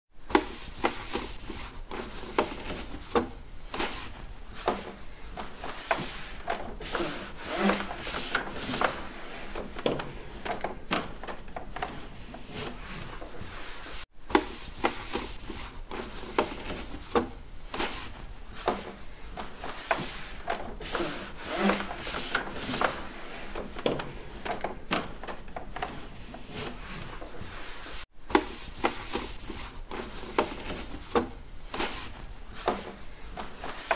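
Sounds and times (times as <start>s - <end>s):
cloth scrubbing a hard surface: 12.0s - 17.0s, 20.0s - 23.6s.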